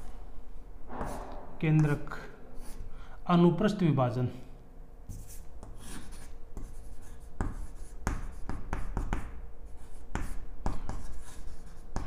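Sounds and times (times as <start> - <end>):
chalk scratching on chalkboard: 5.1 - 12.0.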